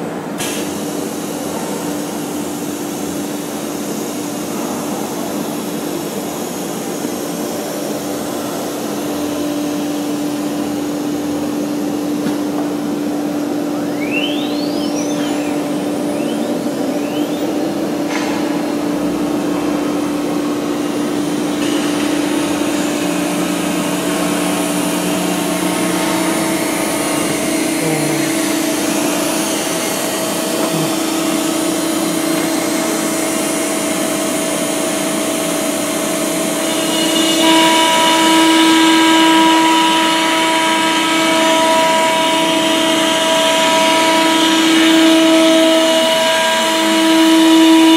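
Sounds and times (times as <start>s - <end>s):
wood router spindle whining: 20.8s - 47.9s.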